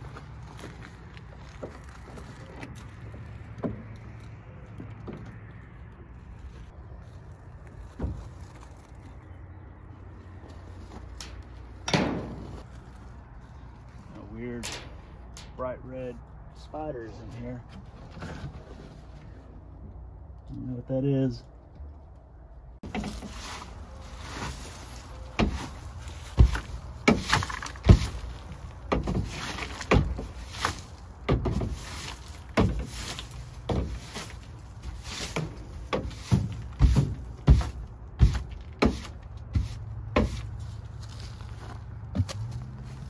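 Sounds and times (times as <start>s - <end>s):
dry leaves raked and scraped: 22.8s - 37.0s, 37.6s - 43.0s.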